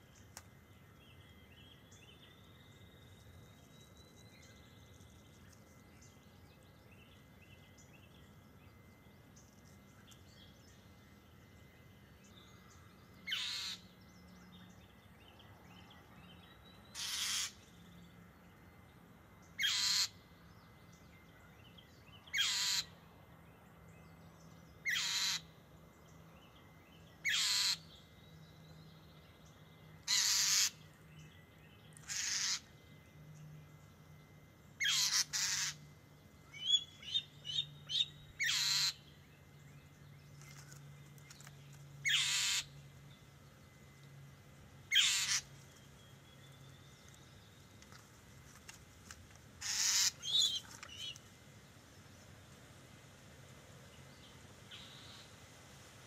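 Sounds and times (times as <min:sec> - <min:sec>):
mockingbird harsh calls: 0:13.2 - 0:13.9, 0:16.9 - 0:17.7, 0:19.6 - 0:20.2, 0:22.2 - 0:23.0, 0:24.8 - 0:25.6, 0:27.2 - 0:27.9, 0:30.0 - 0:30.9, 0:32.0 - 0:32.8, 0:34.8 - 0:35.8, 0:36.6 - 0:39.1, 0:42.0 - 0:42.8, 0:44.9 - 0:45.6, 0:49.6 - 0:51.2.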